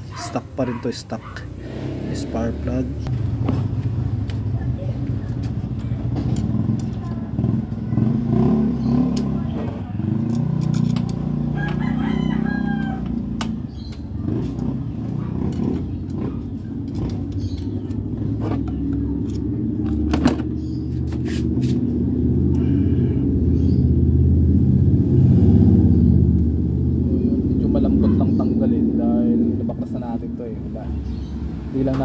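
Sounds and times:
rooster crowing: 0:11.5 - 0:13.2.

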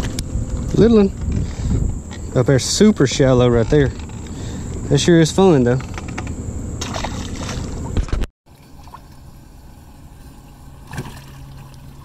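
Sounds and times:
steady low hum: 0:00.0 - 0:12.0
water splash: 0:06.8 - 0:07.9, 0:10.3 - 0:12.0.

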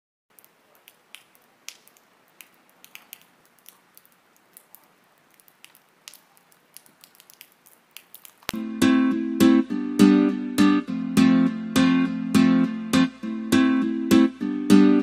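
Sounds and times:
faint clicks and crackles: 0:00.3 - 0:08.6
low steady hiss: 0:00.3 - 0:08.7.

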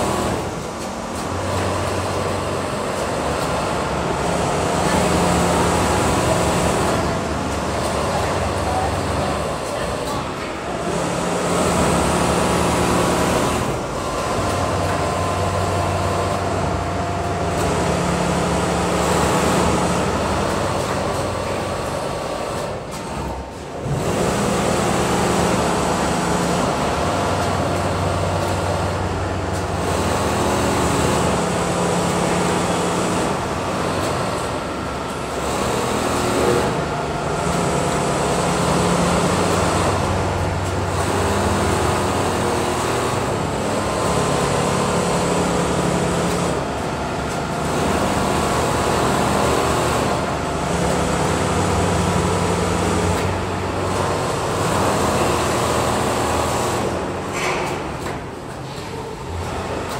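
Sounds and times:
sewing machines humming: 0:00.0 - 0:59.9.

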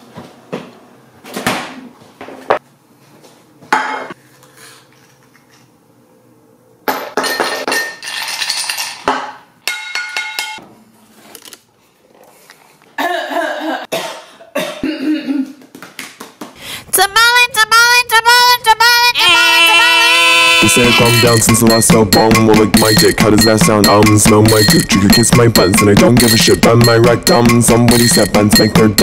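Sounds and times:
ice cubes and kitchenware clinking: 0:07.3 - 0:09.1.

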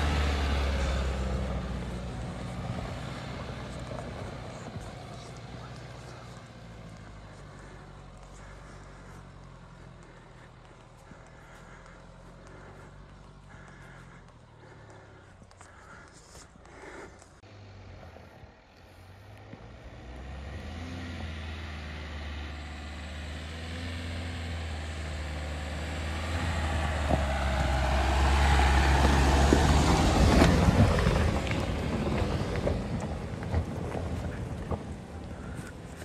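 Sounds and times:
diesel engine pulling uphill: 0:00.0 - 0:36.0
tyres crunching over gravel: 0:00.2 - 0:17.5, 0:26.8 - 0:36.0.

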